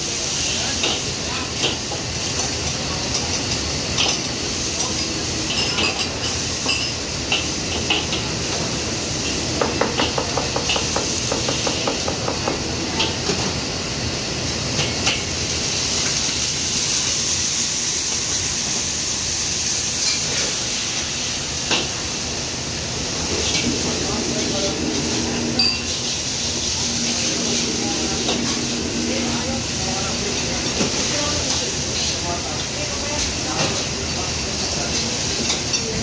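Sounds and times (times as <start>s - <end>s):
gas burner and hood running: 0.0s - 36.0s
sizzling and steam hiss: 0.0s - 36.0s.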